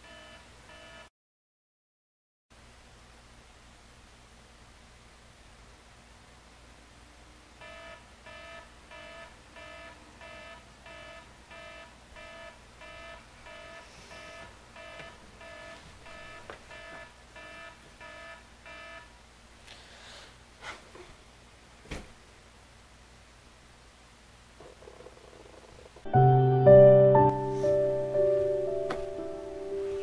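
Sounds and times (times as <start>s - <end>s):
phone alarm beeping: 7.6s - 19.1s.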